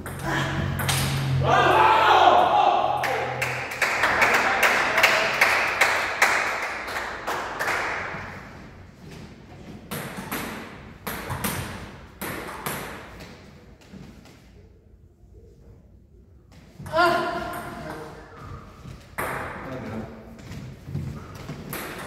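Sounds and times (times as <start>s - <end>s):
table tennis ball taps echoing: 19.2s - 19.7s.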